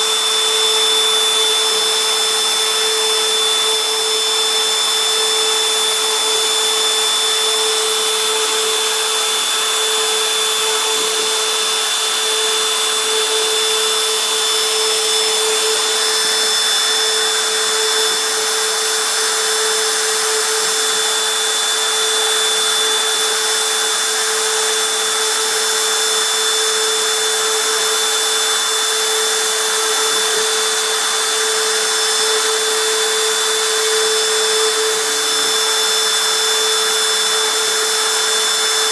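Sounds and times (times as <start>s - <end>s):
machine spindle whining while drilling: 0.0s - 38.9s.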